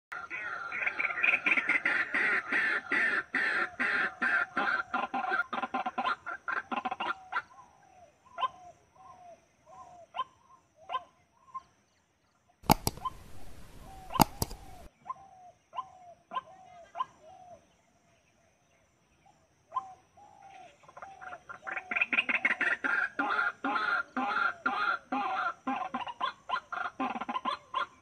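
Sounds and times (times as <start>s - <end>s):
waterhen calling: 12.7s - 14.9s.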